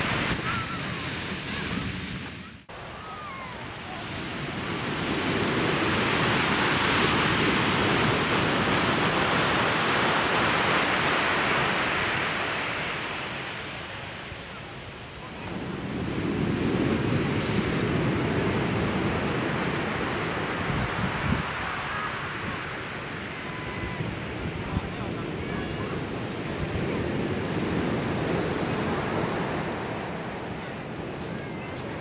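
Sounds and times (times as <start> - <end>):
wind buffeting microphone: 15.3 - 32.0.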